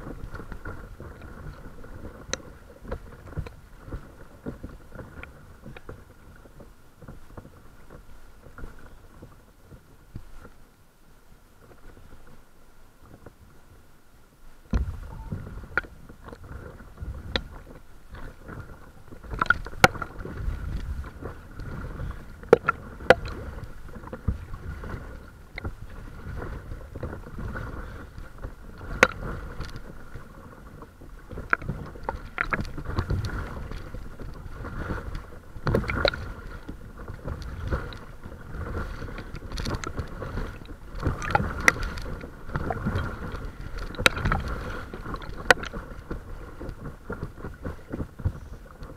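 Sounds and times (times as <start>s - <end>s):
wind on microphone: 0.0s - 10.6s, 14.5s - 48.9s
water lapping against hull: 0.0s - 48.9s
water splashing: 14.7s - 48.9s.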